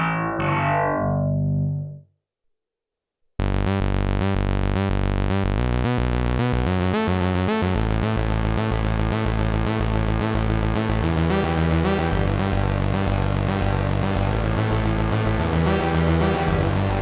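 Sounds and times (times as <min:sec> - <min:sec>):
low pulsing synth note: 0:00.0 - 0:02.0
synthesizer reverb tail: 0:00.0 - 0:02.0
fast repeating synthesizer notes: 0:03.4 - 0:17.0.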